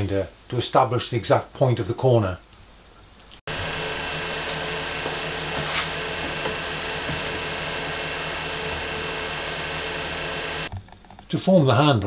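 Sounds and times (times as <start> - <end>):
milling machine motor hum and whine: 3.5 - 10.7.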